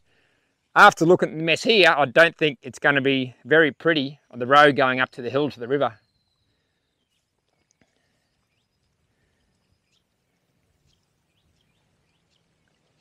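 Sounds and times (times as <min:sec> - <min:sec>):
faint high chirps: 0:05.9 - 0:13.0.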